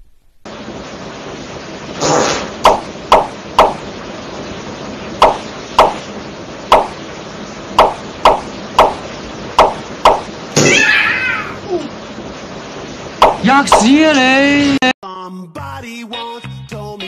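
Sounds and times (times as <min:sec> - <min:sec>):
steady hiss: 0:00.0 - 0:14.9
sharp wood-block knocks: 0:02.6 - 0:03.8, 0:05.2 - 0:06.0, 0:06.7 - 0:07.0, 0:07.8 - 0:09.0, 0:09.6 - 0:10.3, 0:13.2 - 0:13.9.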